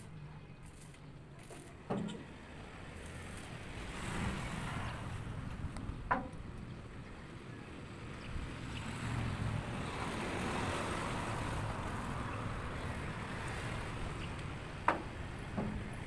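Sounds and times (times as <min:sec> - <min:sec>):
motor vehicle passing: 0:08.0 - 0:16.0.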